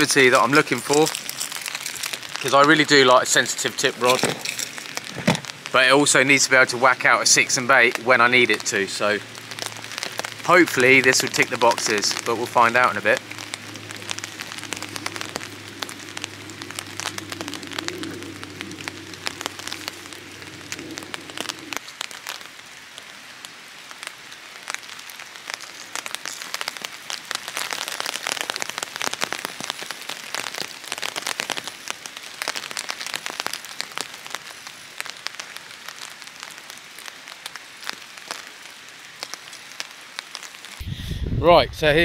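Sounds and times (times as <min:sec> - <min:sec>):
steady rain falling: 0:00.0 - 0:42.0
low hum: 0:13.2 - 0:21.8.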